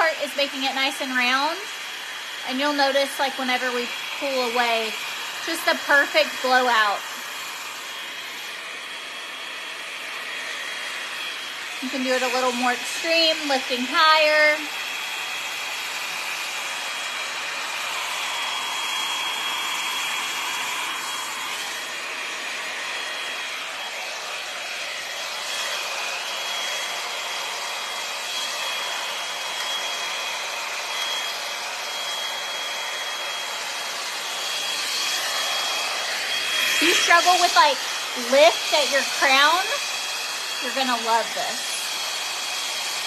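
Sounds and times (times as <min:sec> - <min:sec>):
hot-air brush running: 0:00.0 - 0:43.0.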